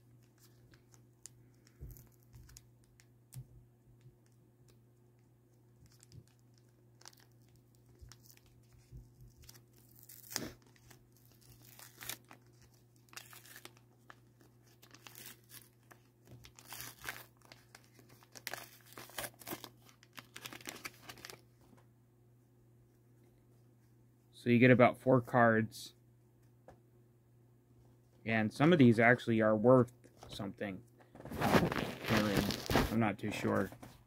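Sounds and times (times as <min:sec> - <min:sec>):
plastic wrapper tearing and crinkling: 0:05.7 - 0:21.4, 0:31.2 - 0:32.9.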